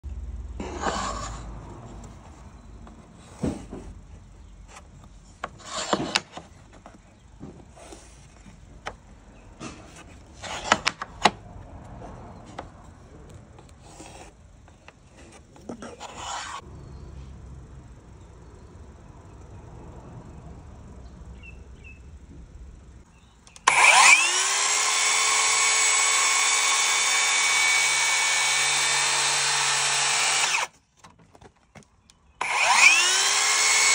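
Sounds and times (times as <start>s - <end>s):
circular saw cutting wood: 0.6s - 2.1s, 5.5s - 6.4s, 15.2s - 16.6s, 23.6s - 30.7s, 32.4s - 33.9s.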